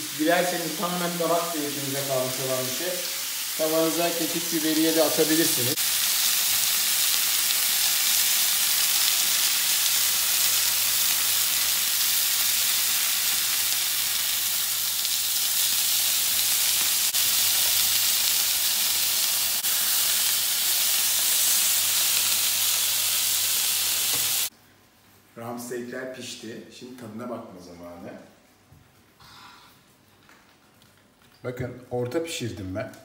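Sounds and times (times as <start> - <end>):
steaks sizzling in a grill pan: 0.1 - 24.5.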